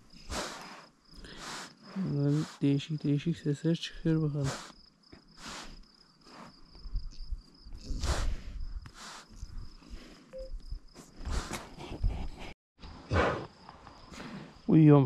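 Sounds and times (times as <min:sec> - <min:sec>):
calf breathing noisily: 0:00.0 - 0:02.7, 0:04.4 - 0:06.8, 0:07.7 - 0:13.3, 0:14.1 - 0:14.7
crickets chirring: 0:00.0 - 0:12.0, 0:12.8 - 0:15.0.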